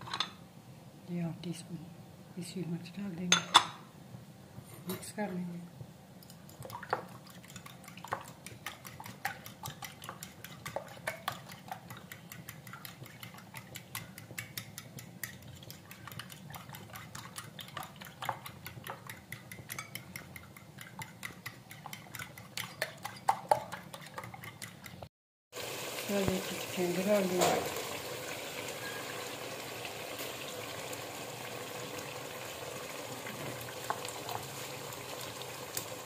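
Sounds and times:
fork clicking against bowl: 0:06.2 - 0:25.0.

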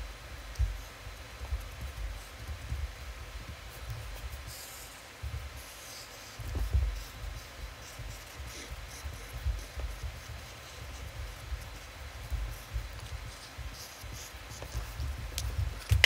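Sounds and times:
soft low thumps: 0:00.0 - 0:04.2, 0:05.2 - 0:05.6, 0:06.4 - 0:16.0
marker scratching on paper: 0:03.7 - 0:16.0.

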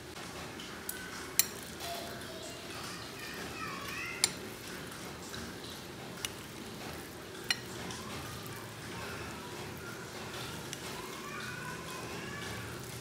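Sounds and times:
utensils stirring meat on a plate: 0:00.4 - 0:13.0
utensils clicking against plate: 0:00.9 - 0:02.1, 0:04.1 - 0:08.5.

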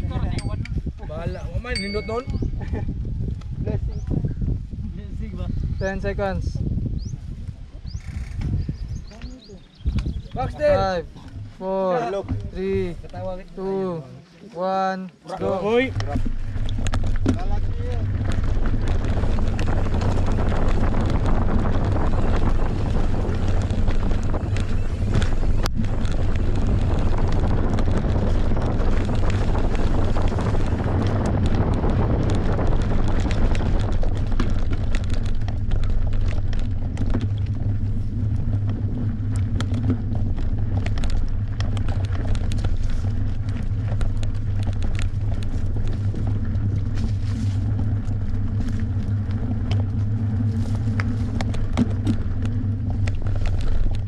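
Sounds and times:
wind buffeting microphone: 0:00.0 - 0:14.0, 0:15.4 - 0:54.0
bike clicks and rattles: 0:15.6 - 0:54.0.

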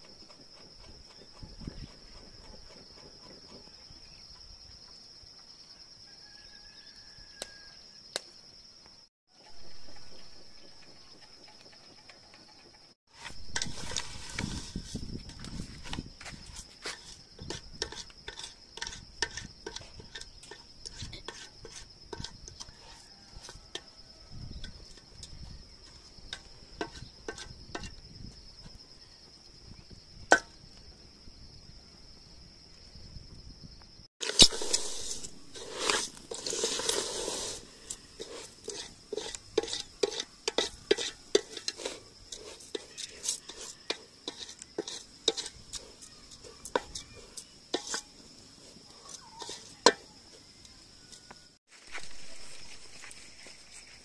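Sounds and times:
high insect trill: 0:00.0 - 0:54.0
pots and utensils clattering: 0:34.2 - 0:48.2.

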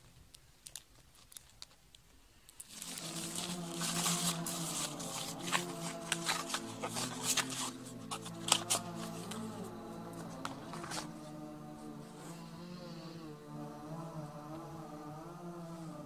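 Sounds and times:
plastic wrapping crinkling: 0:00.0 - 0:09.4
background music with sustained tones: 0:02.7 - 0:16.0.

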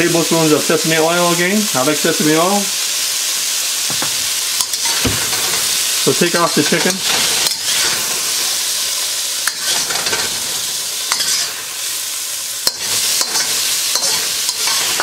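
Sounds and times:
chicken sizzling in hot oil: 0:00.0 - 0:15.0
metal spatula scraping a wok: 0:04.6 - 0:05.8, 0:06.5 - 0:08.2, 0:09.4 - 0:10.4, 0:11.1 - 0:11.6, 0:12.6 - 0:15.0.

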